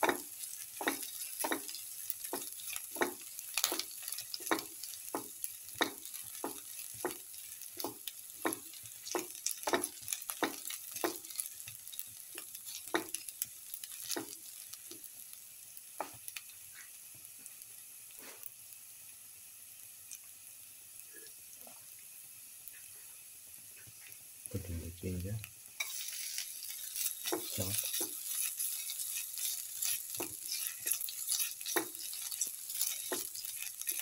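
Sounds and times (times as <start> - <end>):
shallots sizzling in oil: 0.0 - 34.0
spatula scraping metal pan: 25.8 - 34.0.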